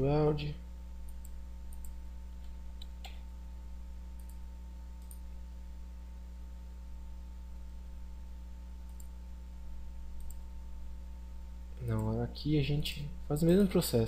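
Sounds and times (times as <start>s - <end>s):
steady low hum: 0.0s - 14.0s
computer mouse clicks: 1.1s - 3.2s, 4.2s - 4.4s, 5.0s - 5.2s, 8.9s - 9.1s, 10.2s - 10.4s.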